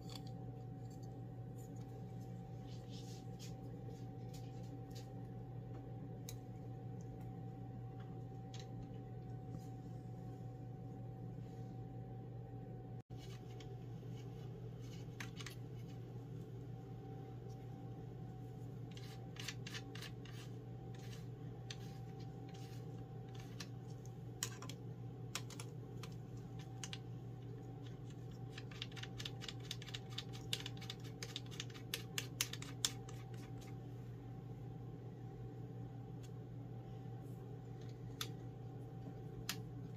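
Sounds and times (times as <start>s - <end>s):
steady low hum: 0.0s - 39.9s
plastic parts clicking and scraping: 18.9s - 33.7s.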